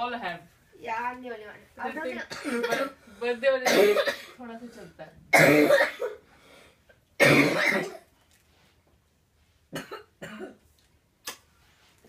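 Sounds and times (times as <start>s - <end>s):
person coughing: 2.3s - 3.0s, 3.6s - 4.4s, 5.3s - 6.2s, 7.2s - 8.1s, 9.8s - 10.6s.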